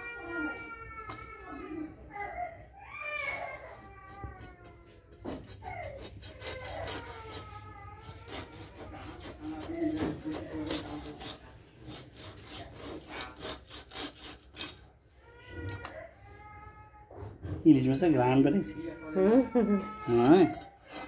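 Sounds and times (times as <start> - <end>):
fish scales scraped on blade: 8.3 - 14.8.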